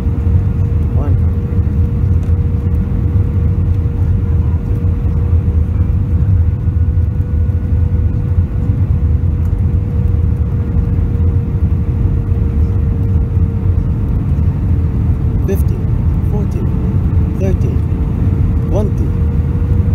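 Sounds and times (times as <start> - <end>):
jet engines and airflow rumble: 0.0 - 19.9.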